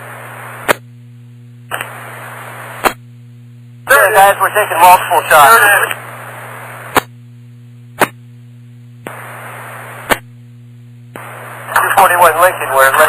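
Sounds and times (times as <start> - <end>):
radio static hiss: 0.0 - 0.9, 1.6 - 3.0, 3.8 - 7.2, 7.9 - 8.3, 9.0 - 10.4, 11.0 - 13.0
steady low hum: 0.0 - 13.0
radio squelch clicks: 1.7 - 3.0, 5.7 - 7.1, 11.1 - 13.0.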